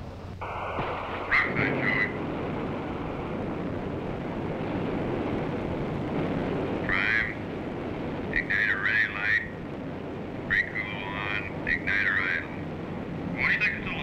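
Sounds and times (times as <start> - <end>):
steady radio rushing noise: 0.0 - 14.0
garbled radio transmission bursts: 1.2 - 2.2, 13.4 - 14.0.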